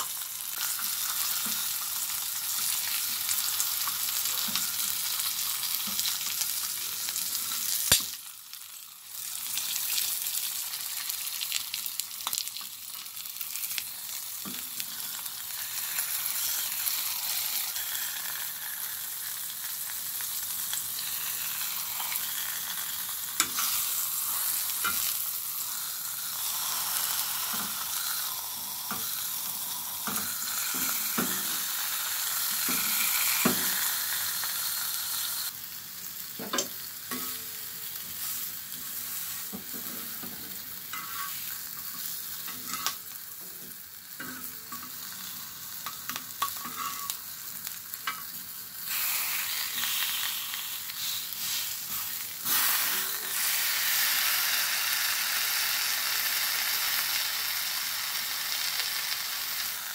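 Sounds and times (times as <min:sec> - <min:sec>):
vegetables and patty sizzling in oil: 0:00.0 - 0:59.9
steel spatula scraping and tapping: 0:39.5 - 0:43.0, 0:45.8 - 0:47.2.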